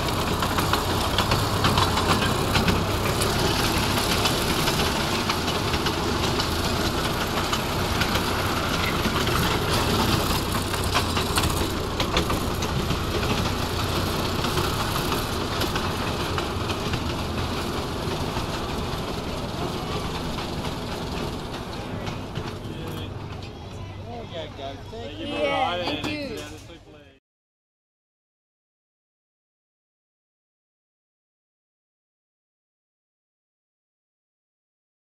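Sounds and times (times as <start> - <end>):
wheels clicking over rail joints: 0.0 - 26.9
miniature train mechanical hum: 0.0 - 27.2.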